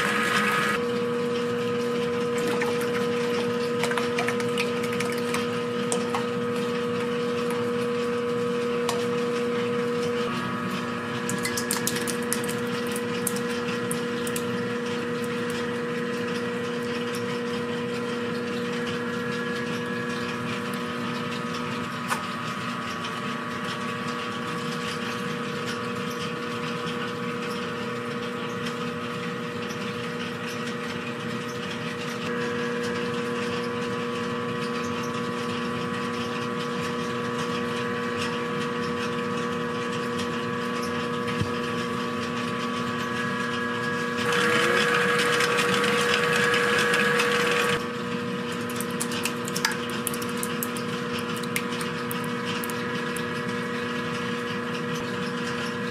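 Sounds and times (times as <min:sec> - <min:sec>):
machine hum: 0:00.0 - 0:23.6, 0:37.3 - 0:54.8.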